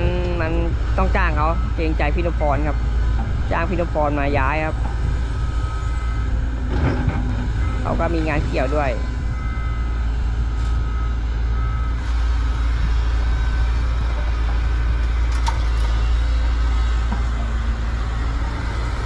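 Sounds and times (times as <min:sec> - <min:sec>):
excavator diesel engine under load: 0:00.0 - 0:19.0
thin whine: 0:00.0 - 0:19.0.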